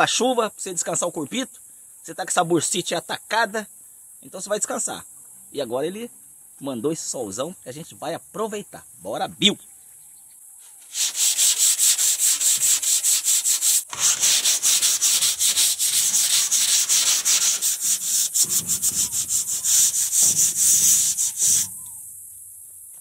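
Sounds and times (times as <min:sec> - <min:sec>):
sandpaper rasping back and forth: 0:10.6 - 0:21.9.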